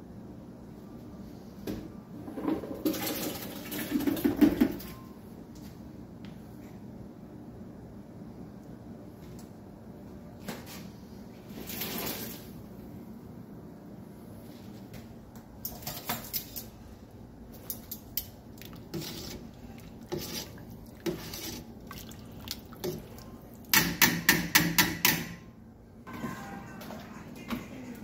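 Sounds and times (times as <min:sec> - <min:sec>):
utensil stirring soup in pot: 0:17.5 - 0:25.2.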